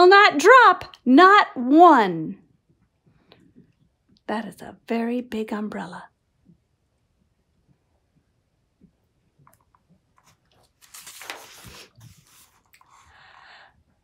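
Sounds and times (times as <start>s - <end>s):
faint clicks of book: 9.4s - 13.0s
page turning rustle: 9.6s - 13.0s.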